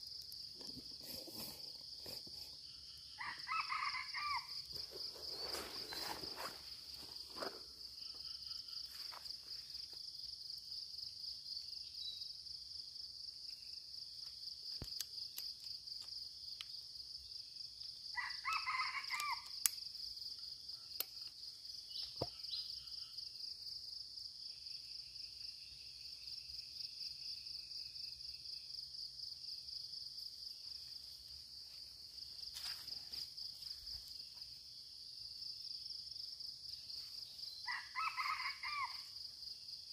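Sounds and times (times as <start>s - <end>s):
insects droning: 0.0s - 39.9s
distant rooster crowing: 3.2s - 4.8s, 18.2s - 19.5s, 37.6s - 39.1s.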